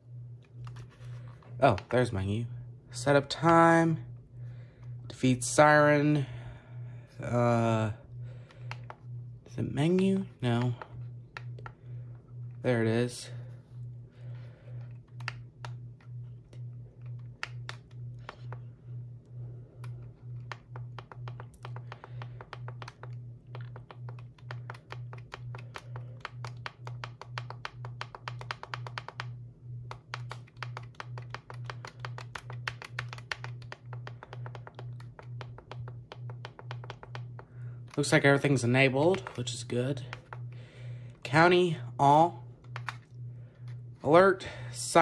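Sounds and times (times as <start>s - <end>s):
low pulsing hum: 0.0s - 45.0s
radio buttons clicking: 42.6s - 43.1s.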